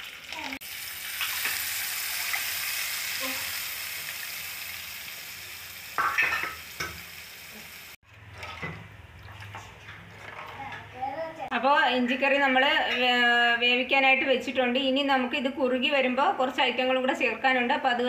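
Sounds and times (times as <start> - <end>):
seeds sizzling in hot oil: 0.0 - 8.0.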